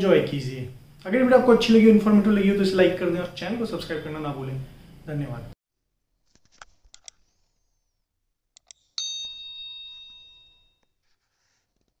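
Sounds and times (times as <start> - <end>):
bright bell ding: 9.0 - 10.8.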